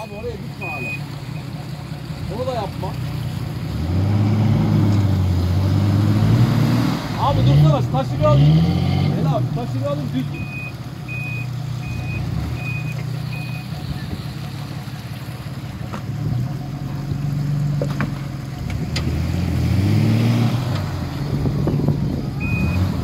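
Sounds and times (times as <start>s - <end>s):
electronic beeping: 0.0s - 1.5s, 22.4s - 22.9s
engine idling and revving: 0.0s - 23.0s.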